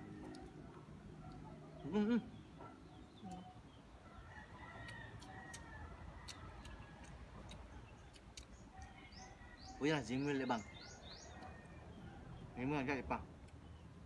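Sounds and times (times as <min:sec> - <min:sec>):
rooster crowing: 0:04.0 - 0:07.1.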